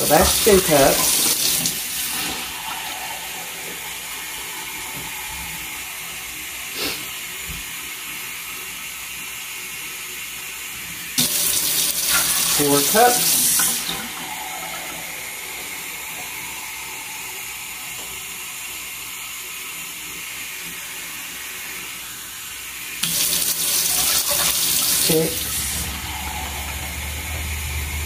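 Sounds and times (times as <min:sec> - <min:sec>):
faucet running into a cup: 0:00.0 - 0:06.9, 0:11.2 - 0:18.8, 0:23.0 - 0:27.7
low hum: 0:01.7 - 0:06.8, 0:25.4 - 0:28.0.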